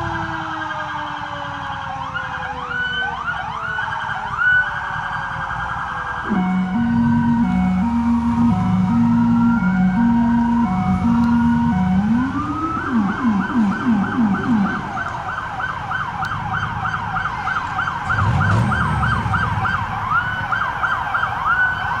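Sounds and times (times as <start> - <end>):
lower-pitched siren yelping: 0.0 - 22.0
police sirens in fast yelp: 0.0 - 22.0.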